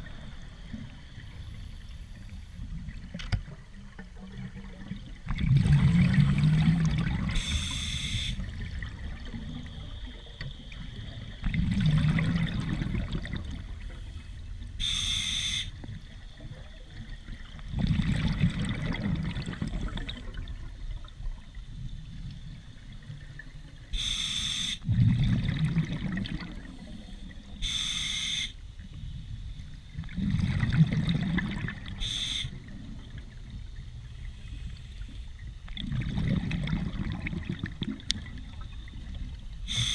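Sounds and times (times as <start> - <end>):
exhaust bubbles rushing: 4.5 - 7.4, 11.4 - 13.7, 17.7 - 20.7, 24.9 - 26.7, 30.0 - 32.0, 35.7 - 38.4
regulator hissing on inhale: 7.4 - 8.5, 13.8 - 15.8, 23.9 - 24.9, 26.7 - 28.6, 32.0 - 32.6, 39.7 - 39.9.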